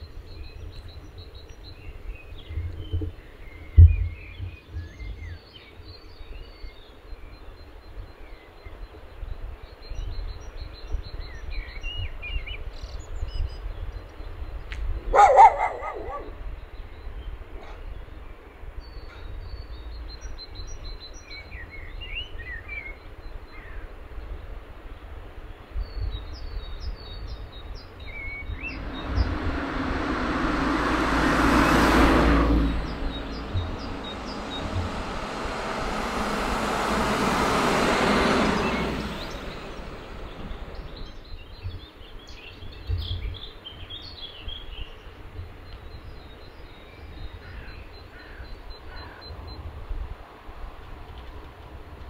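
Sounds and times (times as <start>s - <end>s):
vehicles driving past: 28.0s - 41.3s.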